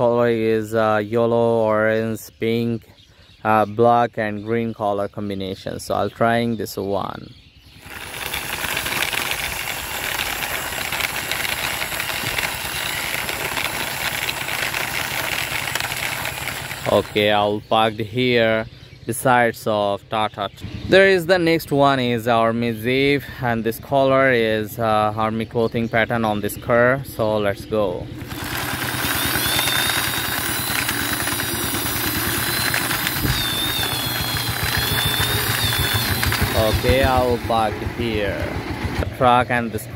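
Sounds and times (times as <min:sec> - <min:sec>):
toy truck rolling on concrete: 0:07.8 - 0:17.5, 0:28.2 - 0:38.4.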